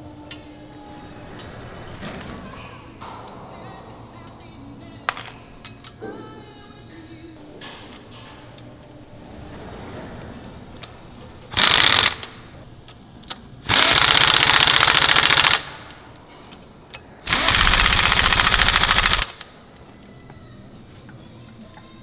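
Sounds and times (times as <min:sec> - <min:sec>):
impact wrench hammering: 0:13.7 - 0:15.8, 0:17.2 - 0:19.4.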